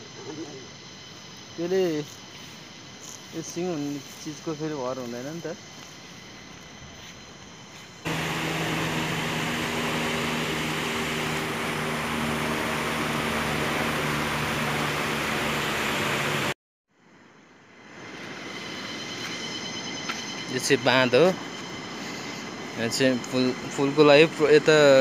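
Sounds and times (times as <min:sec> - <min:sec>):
helicopter flying overhead: 0:08.1 - 0:16.5.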